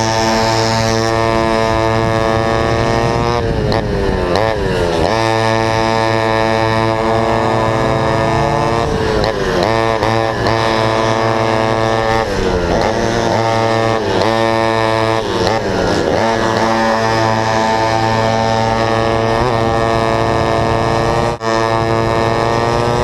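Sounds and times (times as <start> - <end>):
kart engine racing: 0.0 - 23.0
second kart engine: 0.0 - 23.0.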